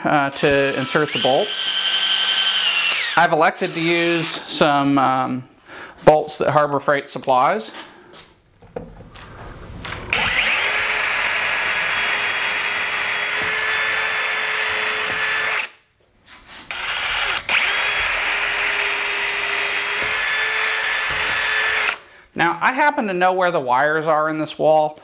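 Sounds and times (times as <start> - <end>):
electric drill drilling into wood: 0.6 - 4.4, 10.1 - 15.8, 16.7 - 22.0.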